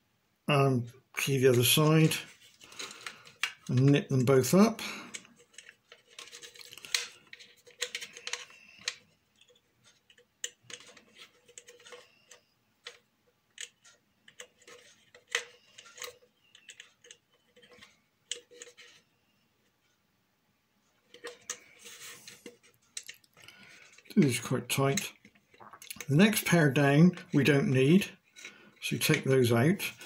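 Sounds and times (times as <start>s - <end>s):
small metal clicks and taps: 5.1s - 19.0s, 22.4s - 24.1s.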